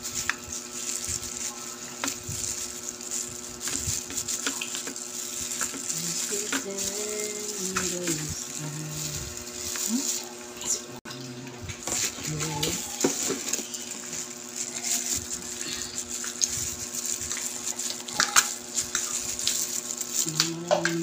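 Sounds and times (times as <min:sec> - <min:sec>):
steady low hum: 0:00.0 - 0:21.0
person murmuring: 0:05.9 - 0:11.6, 0:20.2 - 0:21.0.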